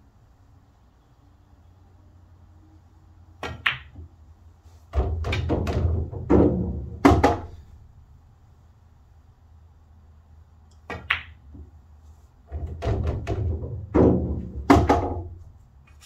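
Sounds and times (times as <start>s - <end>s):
cue striking ball: 3.4s - 4.0s, 5.0s - 7.6s, 10.9s - 11.7s, 12.6s - 15.3s
pool balls clicking: 3.4s - 4.2s, 5.0s - 7.6s, 10.7s - 11.8s, 12.4s - 15.4s
loud knock: 5.0s - 7.5s, 12.5s - 15.3s.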